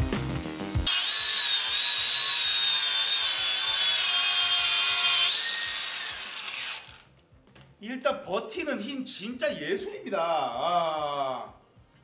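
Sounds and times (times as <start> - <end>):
background music: 0.0 - 12.0
angle grinder grinding steel: 0.9 - 7.2.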